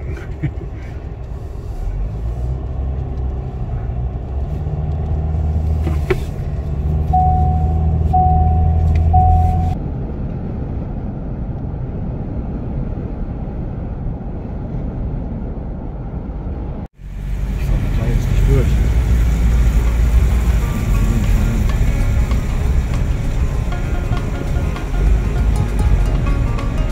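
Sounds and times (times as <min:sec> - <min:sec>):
vehicle engine and road rumble: 0:00.0 - 0:26.9
short beeps: 0:07.1 - 0:09.8.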